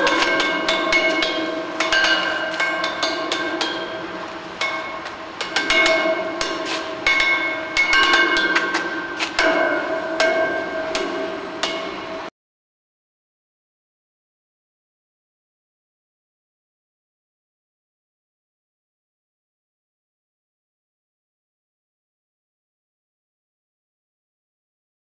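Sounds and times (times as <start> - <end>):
stick clacking along metal railing: 0.0 - 12.1
metal bars ringing: 0.0 - 12.3.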